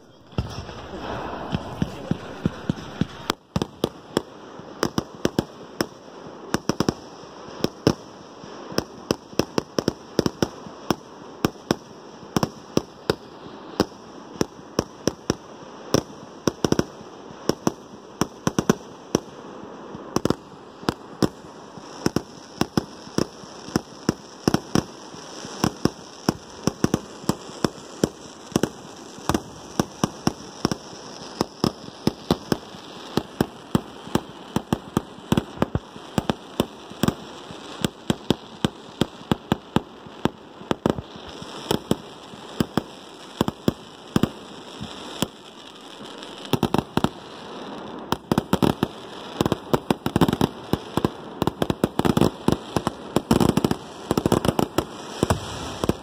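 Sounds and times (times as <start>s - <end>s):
fireworks bangs and pops: 0.0s - 56.0s
hiss of sparks: 54.9s - 56.0s.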